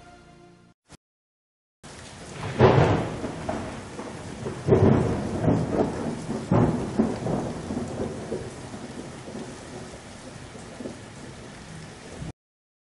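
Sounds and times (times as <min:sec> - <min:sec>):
rain hissing: 0:01.8 - 0:12.3
thunder rolling: 0:02.2 - 0:12.3.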